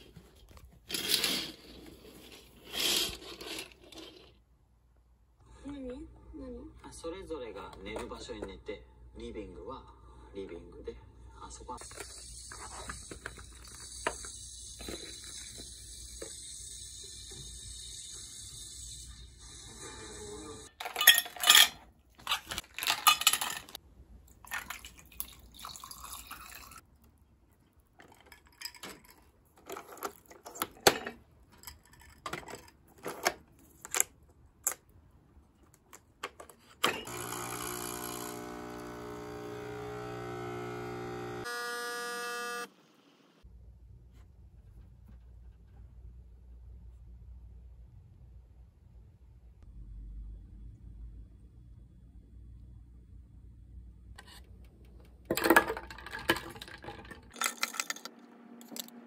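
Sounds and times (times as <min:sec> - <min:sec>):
dishes clattering and clinking: 0:20.8 - 0:23.8
electric buzzing hum: 0:37.0 - 0:42.8.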